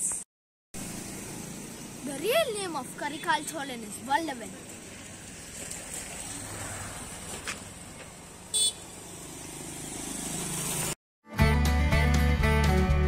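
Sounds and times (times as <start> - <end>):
road traffic rumble: 0.8 - 11.0.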